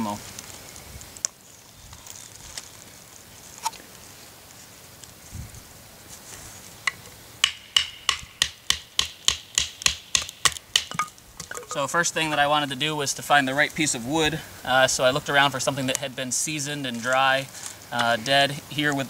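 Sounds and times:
wood handling knocks: 0:06.9 - 0:11.8.

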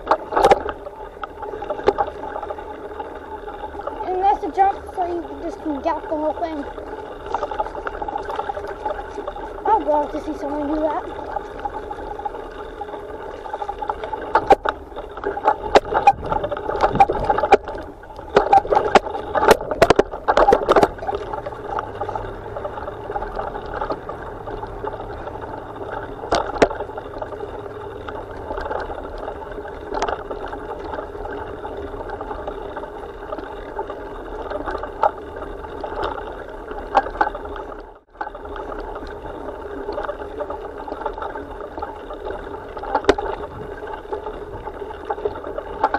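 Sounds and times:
rushing noise of bumpy ride: 0:13.4 - 0:30.4
sharp knocks and rattles: 0:13.5 - 0:28.9.

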